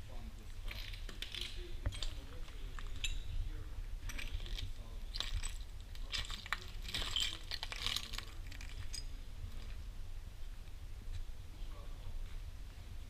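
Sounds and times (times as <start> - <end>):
footsteps crunching on broken glass: 4.2 - 9.2.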